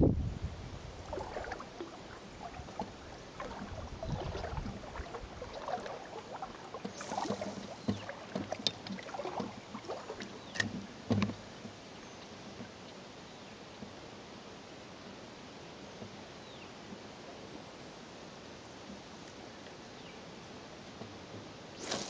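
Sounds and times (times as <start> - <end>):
oars splashing in water: 0.8 - 14.2, 21.0 - 22.0.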